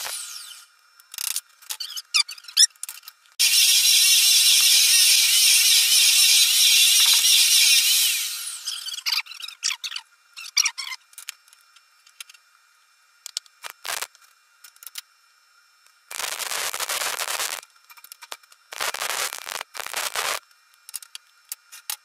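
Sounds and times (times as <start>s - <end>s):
welding arc crackling: 0.0s - 0.7s, 3.4s - 8.8s, 13.6s - 14.1s, 16.1s - 20.4s.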